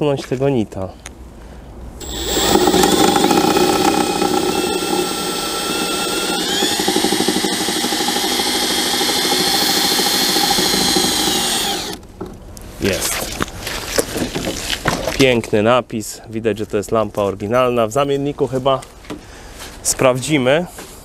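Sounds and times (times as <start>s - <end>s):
cordless drill whining: 2.0s - 12.0s.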